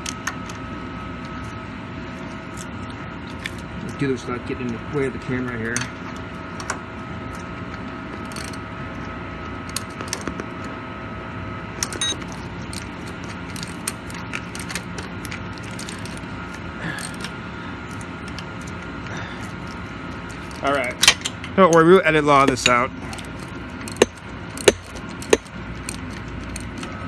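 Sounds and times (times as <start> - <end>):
steady machine hum: 0.0 - 27.0
ratchet clicking on bolts: 20.4 - 26.9.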